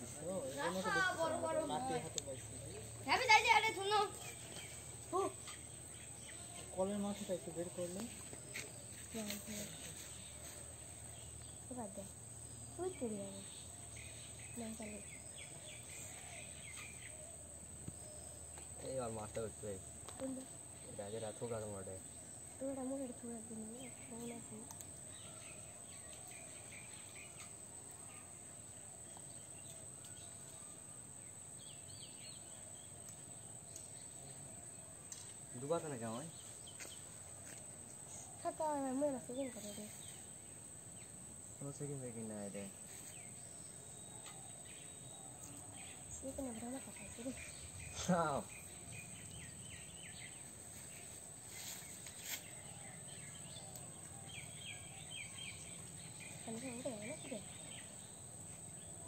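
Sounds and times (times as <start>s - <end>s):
high insect drone: 0.0s - 59.0s
small bird chirps: 0.1s - 19.0s, 42.9s - 59.0s.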